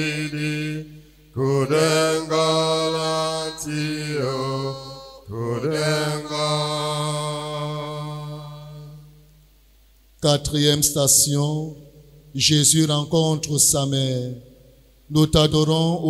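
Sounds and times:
slow sung chant: 0.0s - 16.0s.

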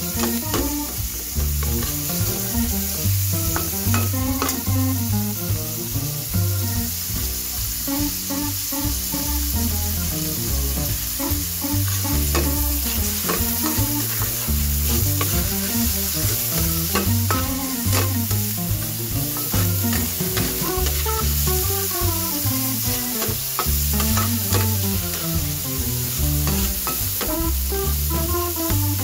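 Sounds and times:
background music: 0.0s - 29.0s
food sizzling in oil: 0.0s - 29.0s
metal spatula scraping pan: 11.9s - 18.2s.

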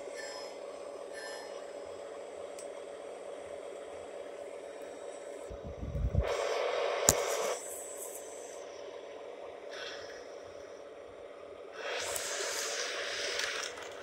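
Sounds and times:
loud hiss: 11.8s - 14.0s.

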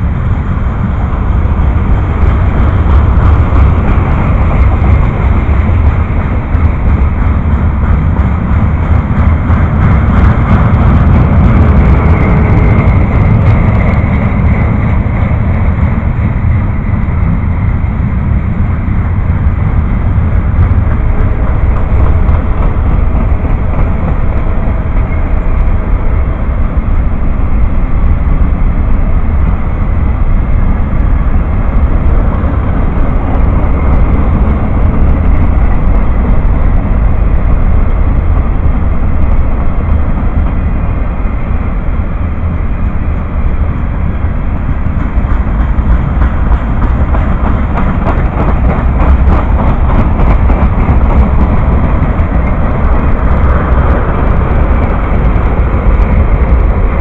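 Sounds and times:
freight train rumbling past: 0.0s - 57.0s
wheels clicking over rails: 42.4s - 57.0s.

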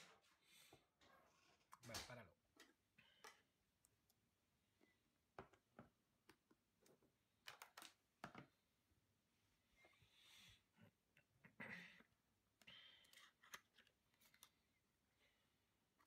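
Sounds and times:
packaging clicks and taps: 5.4s - 8.5s.

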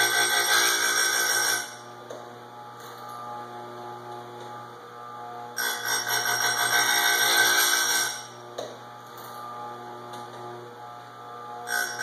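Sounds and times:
grinder wheel grinding chain: 0.0s - 1.8s, 5.6s - 8.4s, 11.7s - 12.0s
grinder motor humming: 0.0s - 12.0s.

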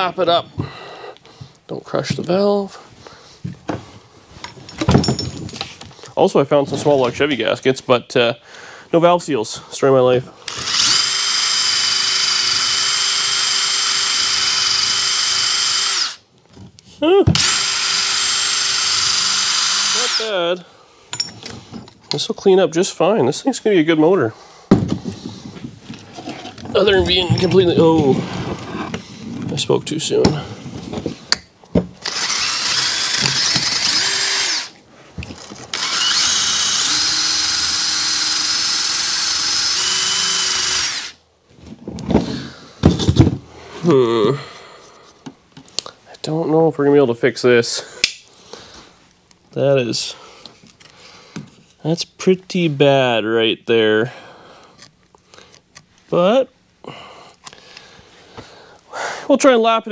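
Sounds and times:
cordless drill whining: 10.4s - 16.2s, 17.3s - 20.4s, 32.0s - 34.8s, 35.7s - 41.2s
drill attachment scrubbing metal: 10.5s - 16.2s, 17.4s - 20.4s, 32.0s - 34.8s, 35.7s - 41.2s.

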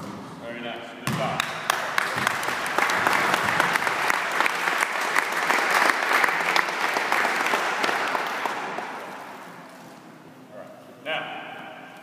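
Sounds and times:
audience applauding: 1.6s - 9.4s.

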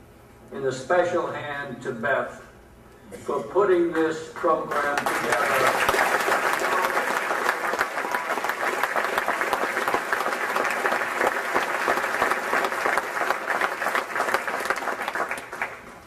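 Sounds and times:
audience applauding: 4.4s - 16.0s.

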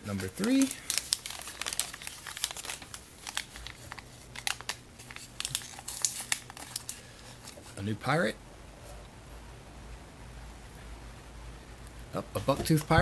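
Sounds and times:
foil packet crinkling and tearing: 0.0s - 7.9s.

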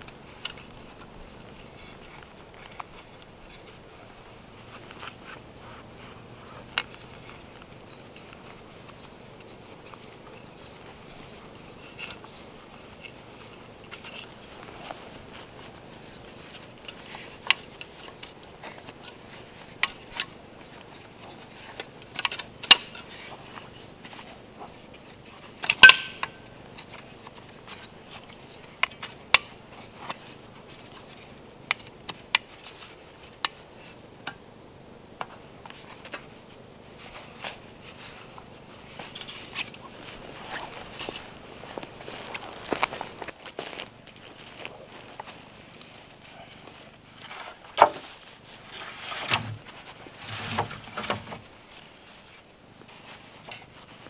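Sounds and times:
wooden frame parts clicking: 16.5s - 23.2s, 25.0s - 30.2s.

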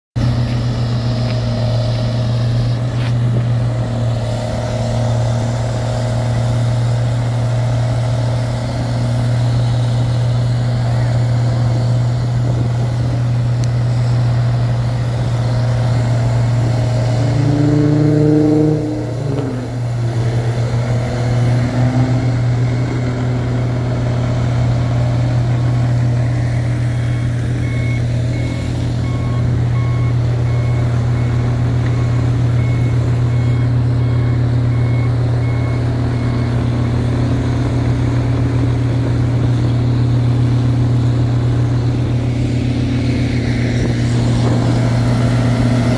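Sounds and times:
heavy machinery engine drone: 0.2s - 45.9s
reversing alarm beeping: 14.7s - 38.7s.

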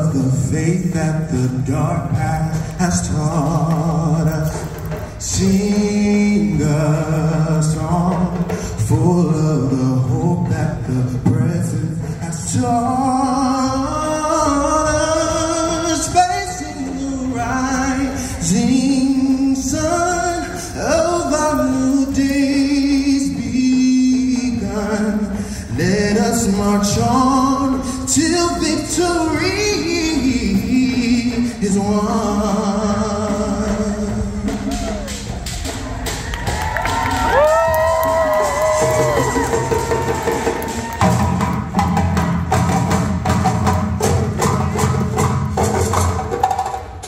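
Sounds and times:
man singing through speakers: 0.0s - 35.3s.

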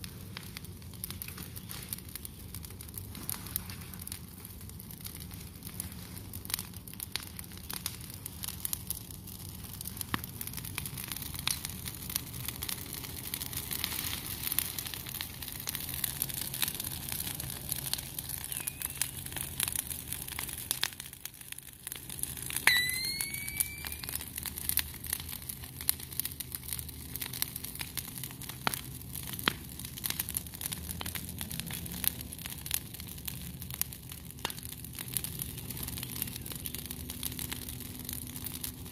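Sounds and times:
branches burning crackling: 0.0s - 38.9s
steady fire hiss: 0.0s - 38.9s
brief high chirp: 22.7s - 24.1s.

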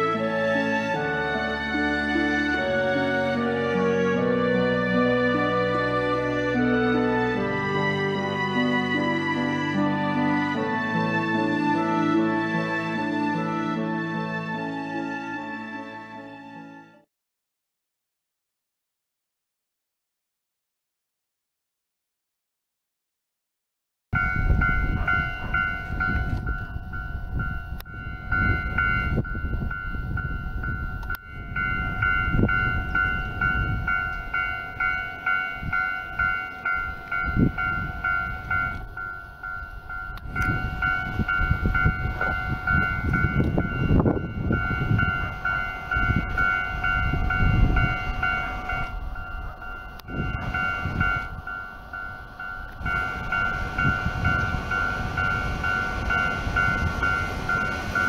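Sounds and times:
train low rumbling: 0.0s - 16.6s, 24.2s - 58.0s
steady high ringing tone: 24.2s - 58.0s.

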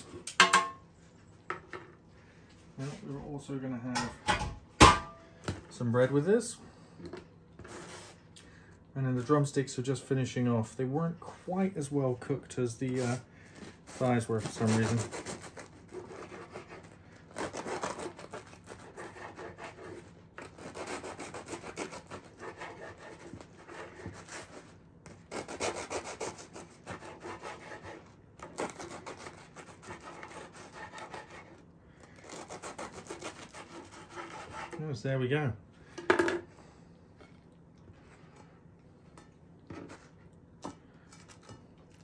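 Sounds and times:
knife sawing through bread: 12.9s - 34.8s.

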